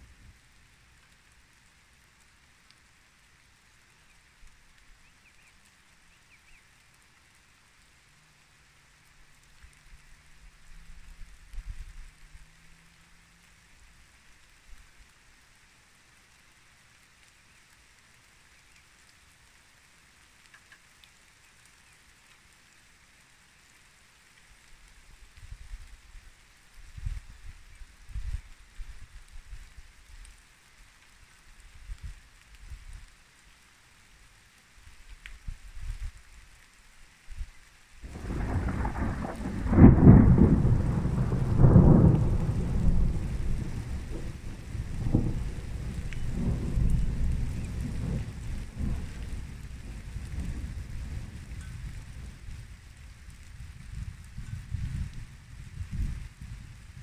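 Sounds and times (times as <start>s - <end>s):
light rain hiss: 0.0s - 57.0s
raindrop ticks: 0.1s - 57.0s
thunder rumbling: 38.1s - 52.8s.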